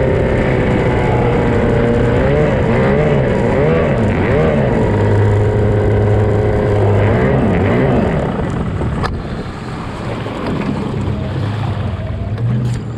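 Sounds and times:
outboard engine running: 0.0s - 12.9s
water noise: 0.0s - 12.9s
wind noise: 0.0s - 12.9s.

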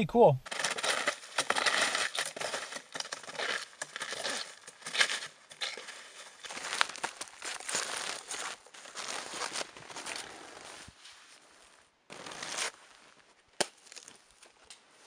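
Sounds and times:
snowshoes crunching through snow: 0.5s - 13.4s.

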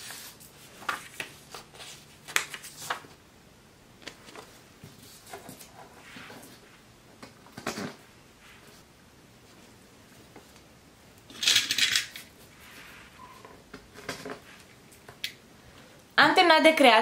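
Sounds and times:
paper handling: 0.0s - 3.2s.

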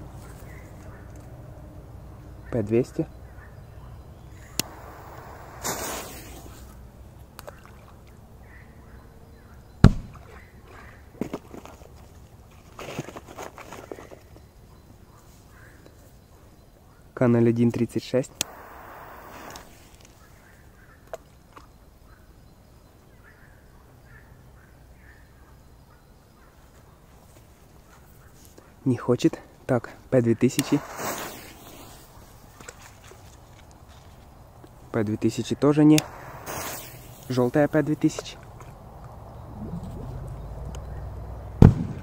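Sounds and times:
firecracker bang: 4.4s - 6.5s, 30.6s - 31.9s, 36.0s - 37.4s, 41.6s - 42.0s
fuse click and hiss: 4.4s - 6.6s, 18.4s - 20.2s, 30.5s - 31.8s, 35.9s - 38.4s
firecracker plopping into water: 41.6s - 42.0s.

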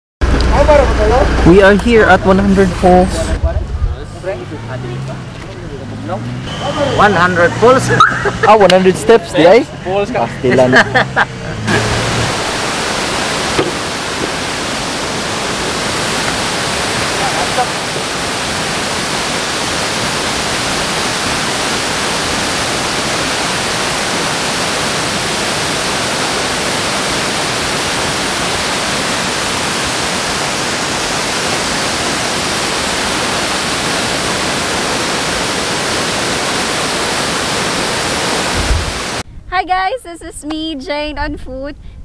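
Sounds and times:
waterfall pouring: 11.7s - 39.2s.

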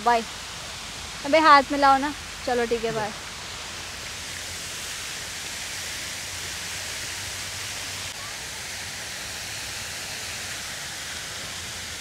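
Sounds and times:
steady background hiss: 0.0s - 12.0s.

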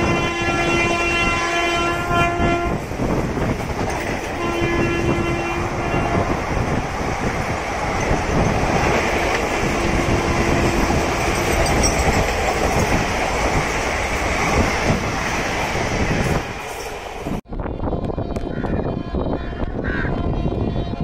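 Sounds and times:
train rushing past: 0.0s - 17.4s
wheels clattering over rail joints: 7.2s - 17.2s.

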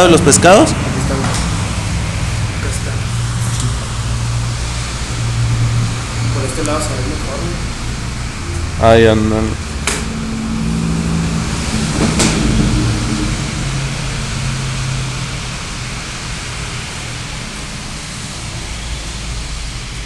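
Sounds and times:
low hum: 1.6s - 18.0s
sharp knock: 11.7s - 13.5s.

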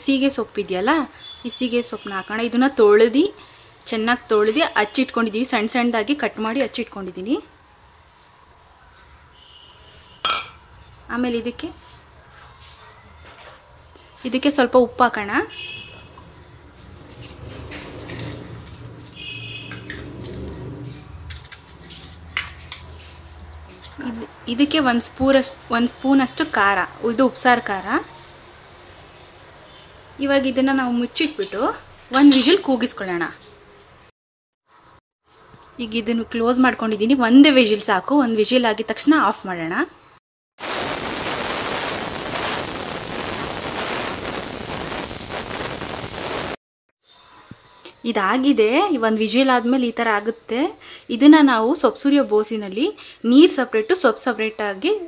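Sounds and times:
pressure cooker steam whistle: 40.6s - 46.6s.

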